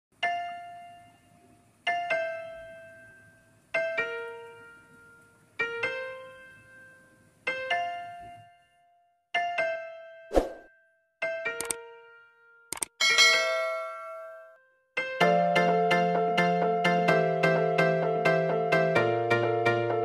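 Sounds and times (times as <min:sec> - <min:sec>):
slow piano chords: 0:00.2 - 0:10.3, 0:11.2 - 0:20.0.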